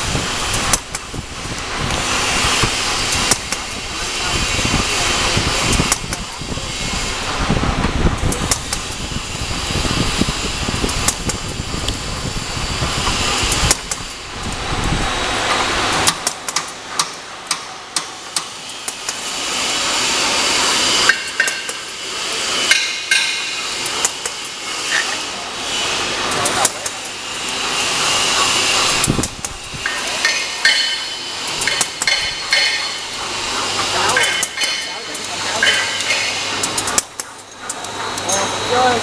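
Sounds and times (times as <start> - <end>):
machine hum and hiss: 0.0 - 39.0.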